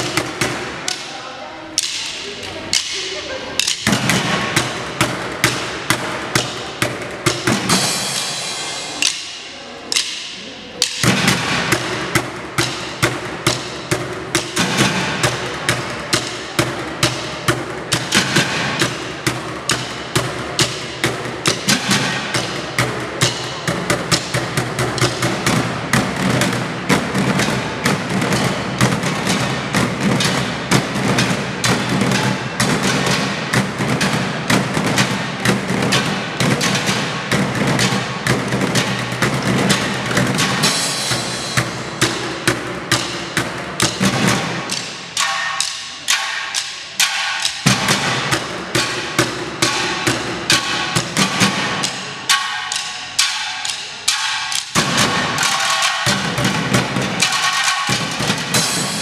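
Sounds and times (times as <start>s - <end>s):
drumming on plastic cans: 1.8s - 2.1s.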